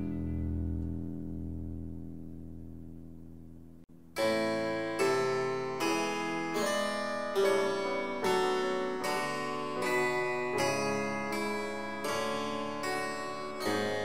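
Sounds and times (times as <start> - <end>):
bright keyboard chords: 3.9 - 14.0.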